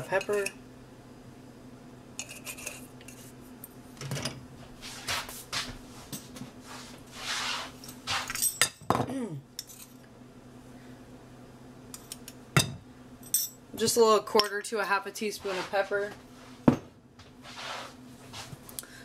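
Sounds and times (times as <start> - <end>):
rustling and scraping of utensils: 2.2 - 8.8, 15.2 - 16.6, 17.4 - 18.6.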